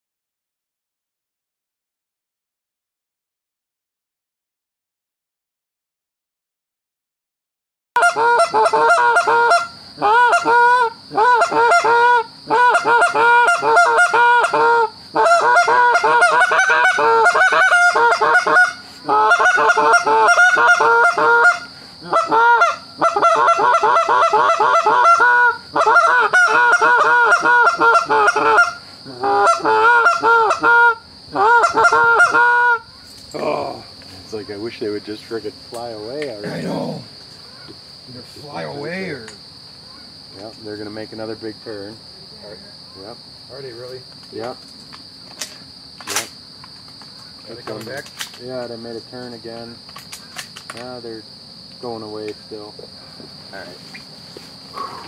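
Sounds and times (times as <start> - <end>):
geese honking: 8.0 - 32.9
crickets chirring: 8.0 - 55.0.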